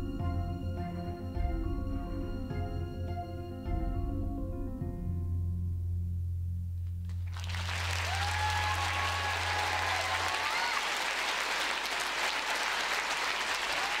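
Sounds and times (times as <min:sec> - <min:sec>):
audience applauding: 0:07.2 - 0:14.0.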